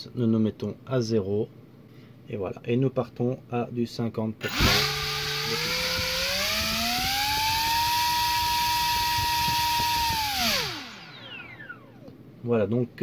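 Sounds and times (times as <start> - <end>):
drone motor whine: 4.4 - 12.1.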